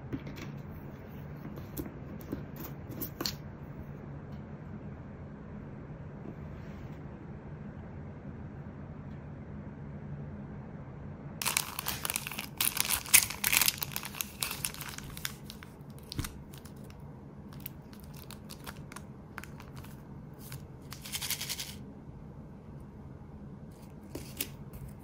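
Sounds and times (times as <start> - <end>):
plastic packets crinkling: 11.4 - 21.8.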